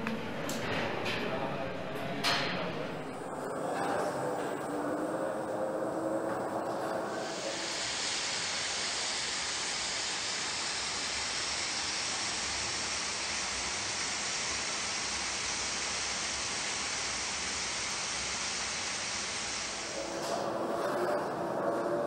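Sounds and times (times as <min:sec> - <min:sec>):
paint spray guns hissing: 0:07.1 - 0:20.0.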